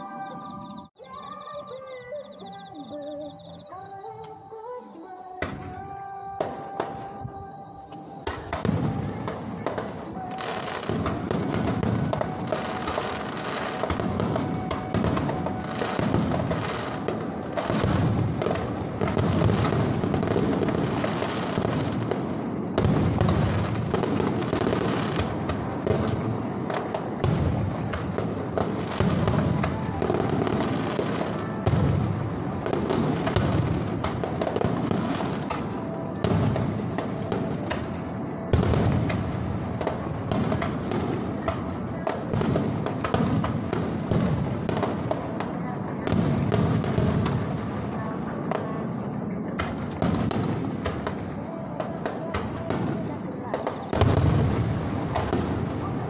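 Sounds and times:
firework crackling: 5.4s - 48.0s
firework booms: 8.2s - 51.4s, 52.0s - 56.0s.

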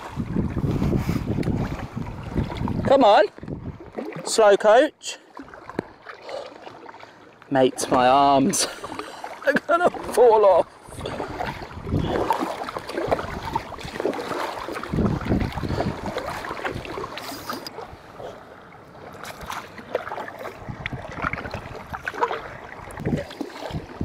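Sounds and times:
wind buffeting microphone: 0.0s - 4.0s, 10.8s - 18.4s, 20.4s - 24.0s
paddle splashes: 0.0s - 24.0s
water slapping hull: 0.0s - 24.0s.

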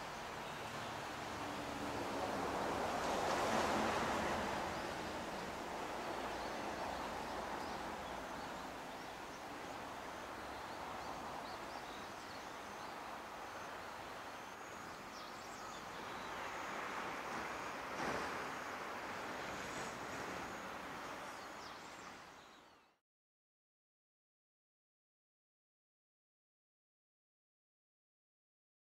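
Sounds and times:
rushing outdoor background noise: 0.0s - 22.9s.

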